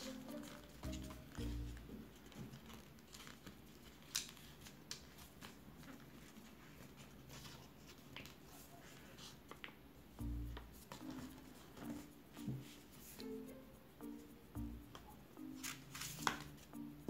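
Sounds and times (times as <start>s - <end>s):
paper crackles: 0.0s - 9.8s, 15.6s - 16.6s
paper rustling and crinkling: 0.0s - 9.8s, 15.6s - 16.6s.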